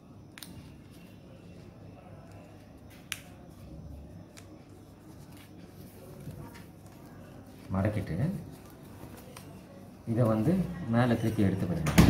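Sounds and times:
paper rustling: 4.3s - 10.4s.

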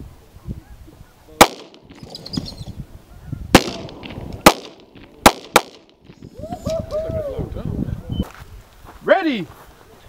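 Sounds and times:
gunshots with echo: 1.4s - 2.0s, 3.5s - 6.0s.

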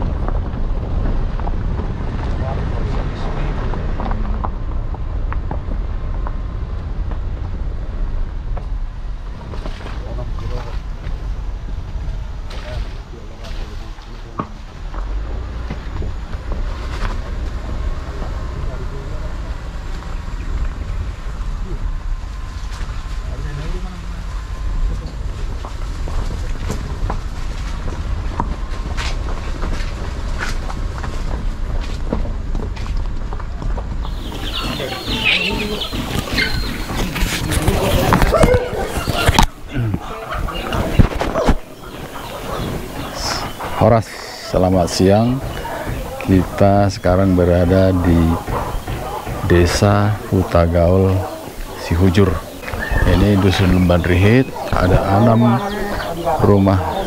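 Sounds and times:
wind buffeting microphone: 24.4s - 57.0s
footsteps crunching on gravel: 25.7s - 57.0s.

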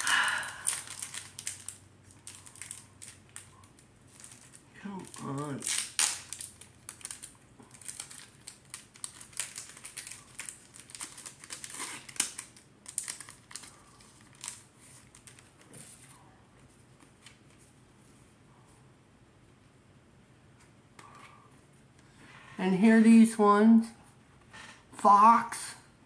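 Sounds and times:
foil card pack crinkling: 0.0s - 16.0s.

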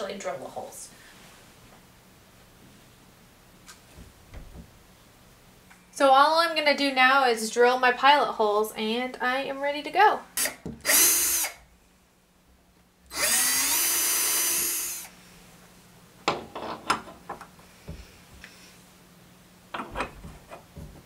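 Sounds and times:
cordless drill boring into wood: 10.4s - 11.6s, 13.1s - 15.1s.

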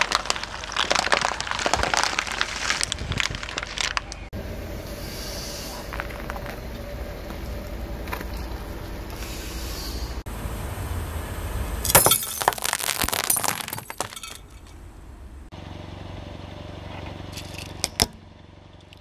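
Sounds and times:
brittle objects cracking and crunching: 0.0s - 4.3s, 12.2s - 14.0s
car rumbling: 0.0s - 19.0s.

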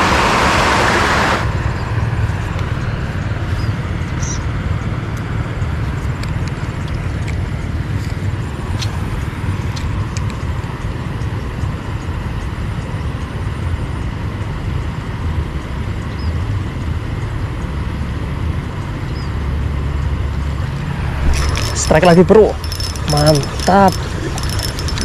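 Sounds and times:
wind buffeting microphone: 20.4s - 25.0s.

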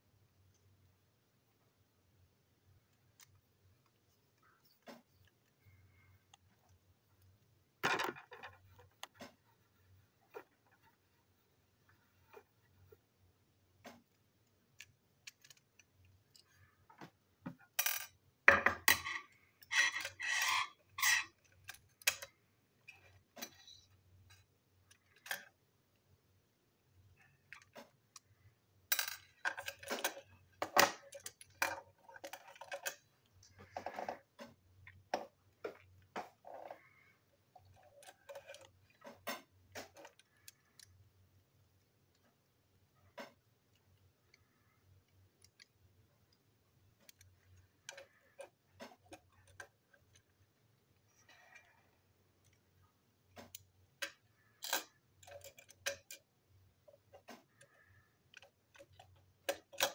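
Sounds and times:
plastic toy parts clicking and rattling: 2.9s - 9.7s, 13.8s - 16.6s, 18.8s - 25.6s, 27.1s - 36.9s, 37.5s - 41.1s, 45.0s - 51.7s, 52.4s - 59.9s.

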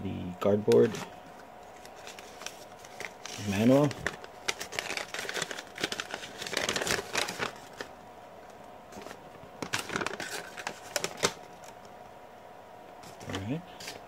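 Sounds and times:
paper rustling and crinkling: 0.8s - 7.9s, 8.9s - 11.8s, 13.0s - 14.0s.

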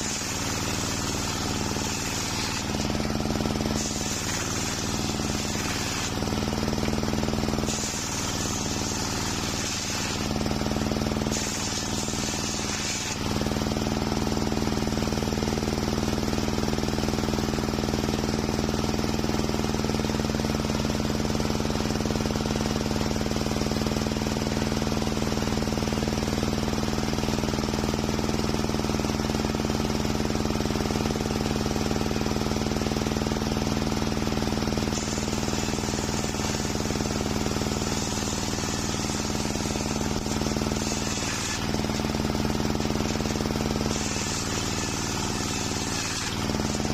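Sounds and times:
saw rasping through timber: 0.0s - 13.9s, 34.8s - 46.9s
circular saw humming: 0.0s - 14.0s, 34.8s - 46.9s.

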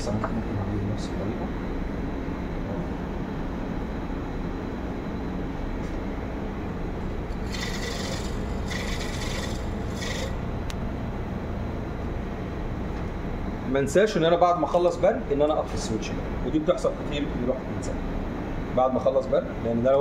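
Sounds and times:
electrode sharpener running: 7.3s - 10.5s
rasping grinding: 7.3s - 10.5s.

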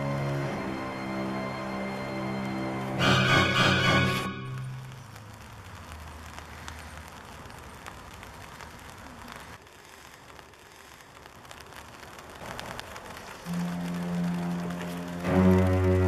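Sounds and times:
faint background hiss: 3.8s - 16.0s
light clicks and crackles: 4.8s - 16.0s.

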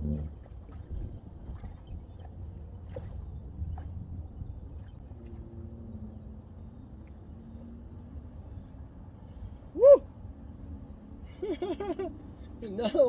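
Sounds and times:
wind buffeting microphone: 0.0s - 5.4s.

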